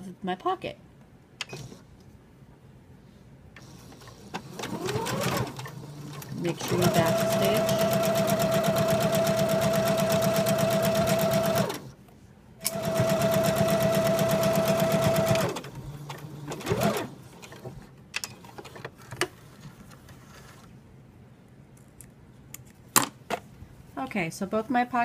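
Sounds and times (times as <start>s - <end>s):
sewing machine stitching: 3.6s - 11.9s, 12.6s - 17.8s.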